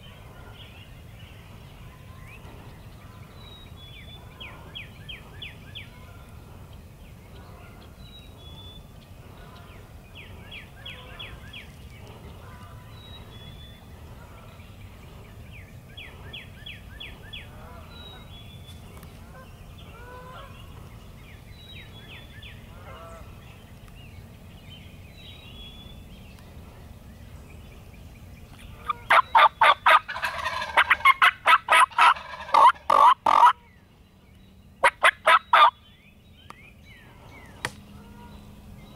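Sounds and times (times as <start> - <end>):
turkey gobbling: 28.8 - 33.6, 34.8 - 35.8.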